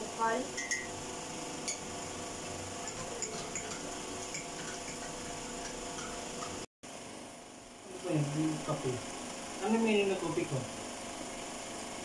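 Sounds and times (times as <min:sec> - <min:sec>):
room hum: 0:00.0 - 0:12.0
spoon clinking against cup: 0:00.5 - 0:00.9, 0:01.6 - 0:01.9, 0:02.8 - 0:06.6.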